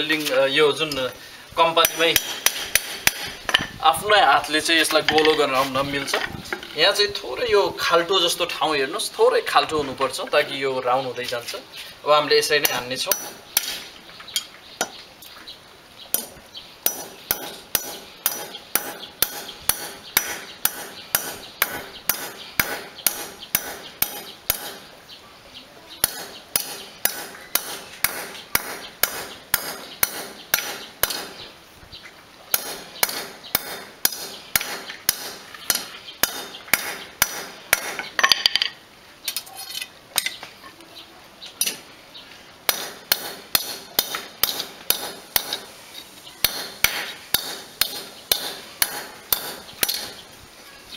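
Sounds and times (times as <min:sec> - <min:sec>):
hammer striking steel rod: 0:01.8 - 0:03.4, 0:12.6 - 0:13.8, 0:16.1 - 0:24.8, 0:26.0 - 0:31.3, 0:32.5 - 0:38.1, 0:42.7 - 0:45.7, 0:46.4 - 0:50.1.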